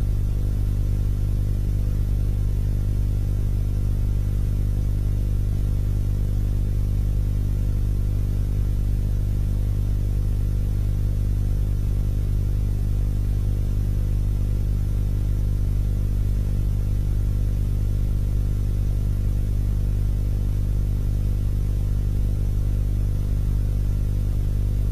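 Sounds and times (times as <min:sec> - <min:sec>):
low electrical hum: 0:00.0 - 0:24.9.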